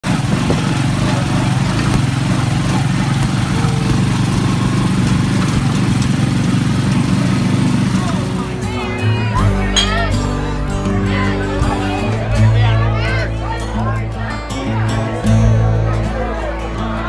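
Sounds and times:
small motorcycle engine running: 0.0s - 10.1s.

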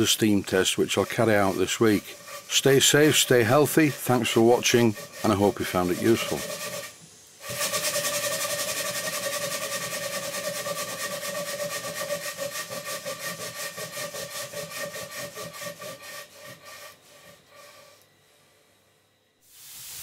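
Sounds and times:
steady whine: 0.0s - 8.9s
model steam engine exhaust beats: 0.0s - 18.0s.

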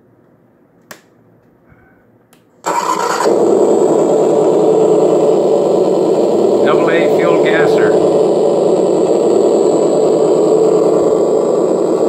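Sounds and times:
electronic engine sound idling: 2.6s - 12.0s.

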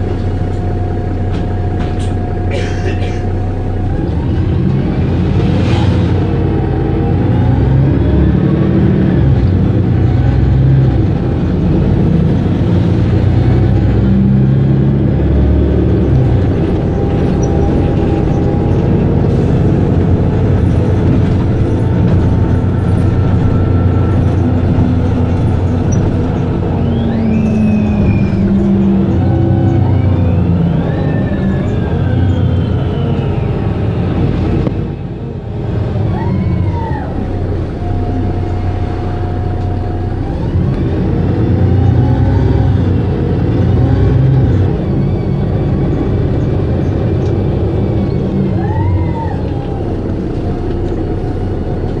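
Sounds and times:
bus diesel engine idling: 0.0s - 7.8s, 8.4s - 52.0s
short whistling glides: 26.8s - 28.6s.

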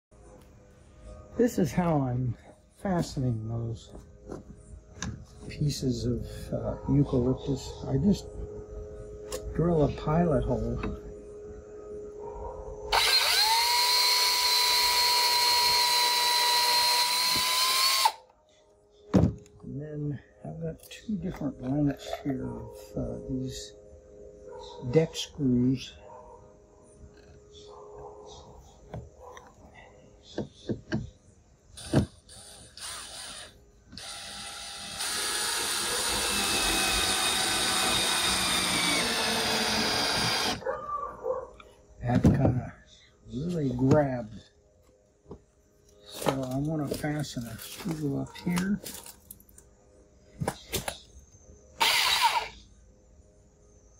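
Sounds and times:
cordless drill boring into wood: 12.9s - 18.2s, 31.8s - 40.6s, 51.8s - 52.6s
drill trigger blips: 51.8s - 52.6s.

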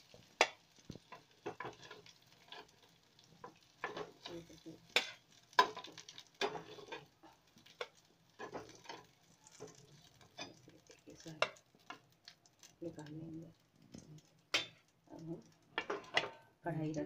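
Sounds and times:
faint oil sizzle: 0.0s - 17.0s
metal spoon scraping a pan: 0.2s - 12.0s, 14.2s - 14.9s, 15.8s - 16.4s.

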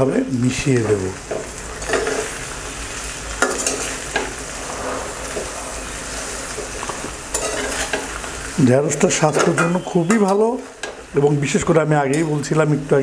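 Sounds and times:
vegetables sizzling in oil: 0.0s - 13.0s
metal spatula scraping pan: 0.8s - 2.4s, 3.4s - 8.4s, 9.0s - 11.0s.

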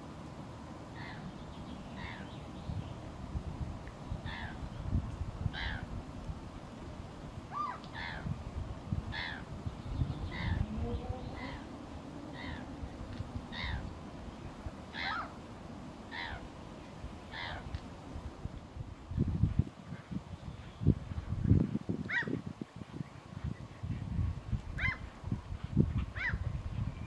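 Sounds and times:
bird calling: 0.9s - 3.0s, 4.2s - 4.8s, 5.5s - 5.9s, 7.5s - 8.3s, 9.1s - 15.4s, 16.1s - 17.8s.

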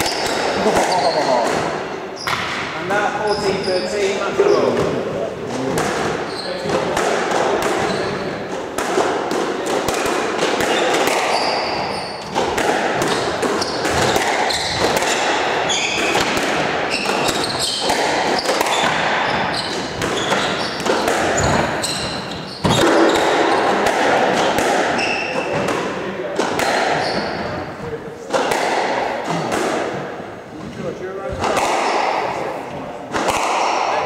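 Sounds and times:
squash ball cracking off racket and walls: 0.0s - 3.5s, 4.6s - 34.0s
sneakers squeaking on wooden floor: 0.0s - 8.8s, 10.4s - 26.0s, 26.6s - 27.9s.

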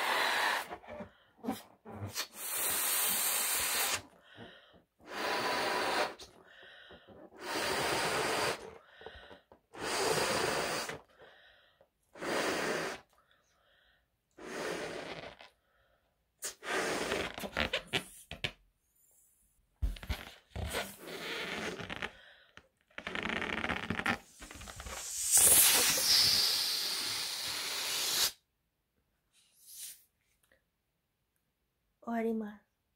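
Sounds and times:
person blowing up a balloon: 0.0s - 11.3s, 12.1s - 13.2s, 14.3s - 15.8s, 16.4s - 18.4s, 19.8s - 28.5s.

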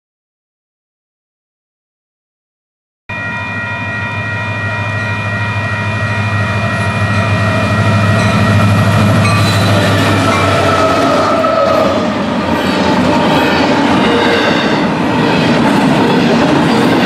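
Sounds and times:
diesel locomotive engines rumbling: 3.1s - 17.0s
train horn: 5.4s - 12.2s.

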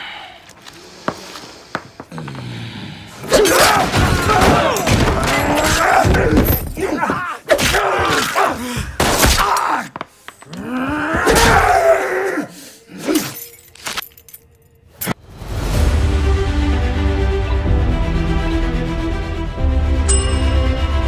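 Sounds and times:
men groaning and crying out: 2.0s - 13.7s.

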